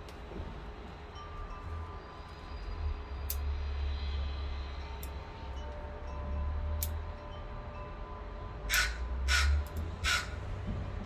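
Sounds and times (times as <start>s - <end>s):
crow cawing loudly: 8.7s - 10.4s.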